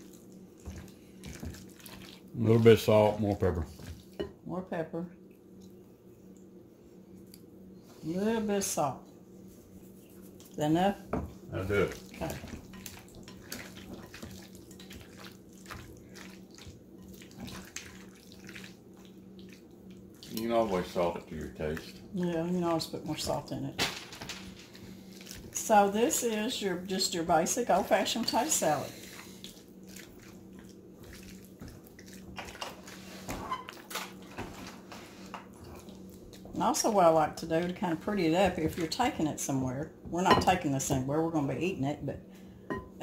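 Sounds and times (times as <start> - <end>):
low steady hum: 0.0 - 43.0
spoon stirring wet salad: 11.7 - 23.4, 28.3 - 33.2
spoon tapping glass bowl: 42.7 - 43.0.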